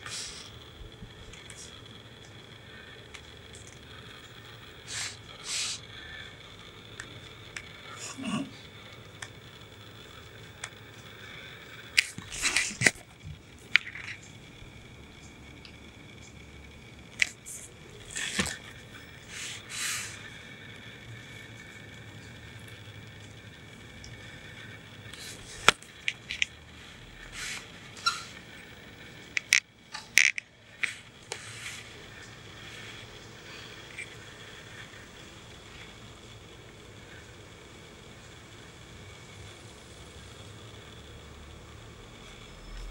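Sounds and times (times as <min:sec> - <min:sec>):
plastic balls clacking in toy track: 0:29.4 - 0:31.0.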